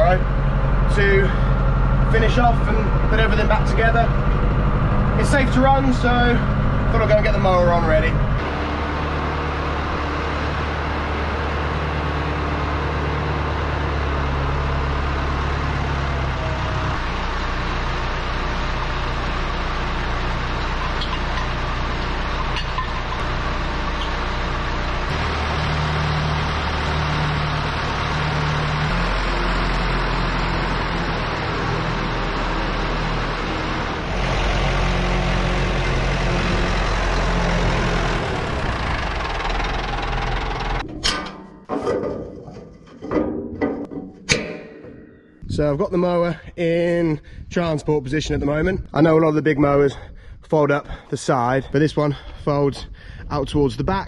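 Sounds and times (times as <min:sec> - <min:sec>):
tractor diesel engine idling: 0:00.0 - 0:41.1.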